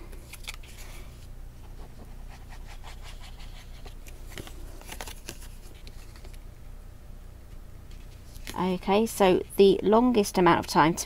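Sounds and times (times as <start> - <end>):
paper rustling: 0.2 - 6.4, 7.9 - 8.7.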